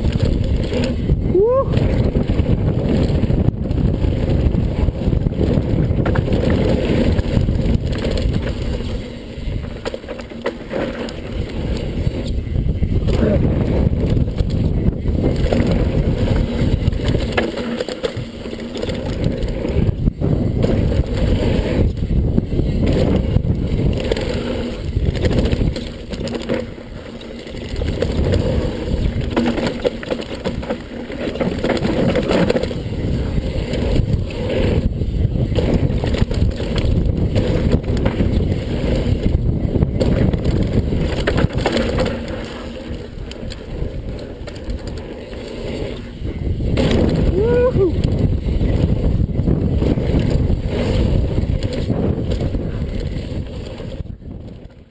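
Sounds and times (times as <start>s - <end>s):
bike rattling over bumps: 0.0s - 54.9s
bike tyres rumbling on dirt: 0.0s - 54.9s.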